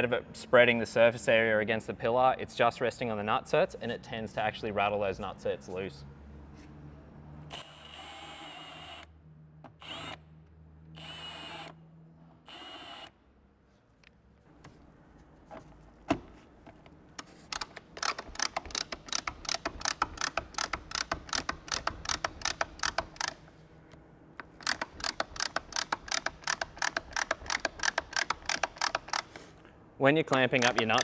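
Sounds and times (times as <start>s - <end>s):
ratchet tool clicking: 17.2s - 23.4s, 24.4s - 29.4s, 30.3s - 31.0s.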